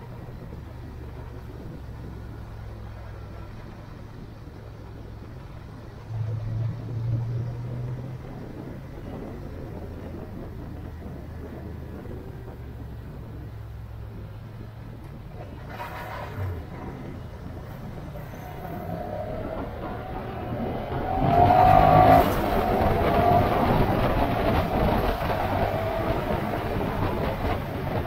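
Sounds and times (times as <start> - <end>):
road noise: 0.0 - 28.0
vehicle engine: 0.0 - 28.0.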